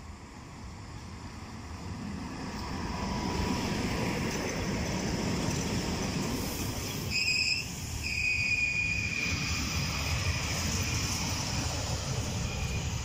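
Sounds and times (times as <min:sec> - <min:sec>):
train wheels rumbling on rails: 0:00.1 - 0:13.0
high wheel squeal: 0:06.8 - 0:11.3.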